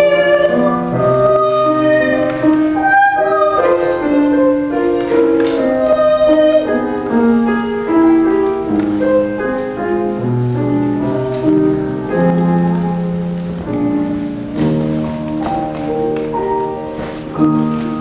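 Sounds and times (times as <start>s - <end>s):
young woman singing: 0.0s - 9.8s
grand piano accompaniment: 0.0s - 18.0s.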